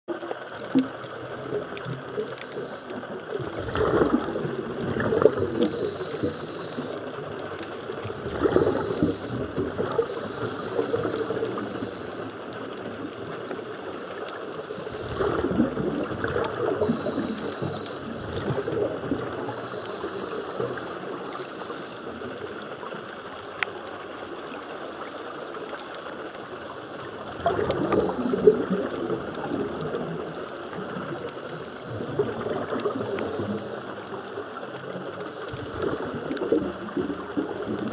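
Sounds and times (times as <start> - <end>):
exhaled bubbles underwater: 0.1 - 37.9
regulator inhalation hiss: 5.2 - 7.1, 10.0 - 12.4, 16.8 - 22.3, 32.7 - 34.6.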